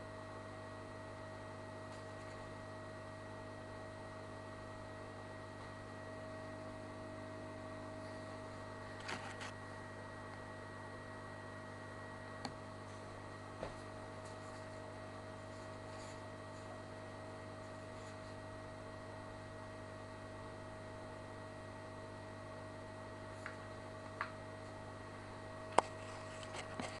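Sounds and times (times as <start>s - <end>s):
aquarium pump humming: 0.0s - 27.0s.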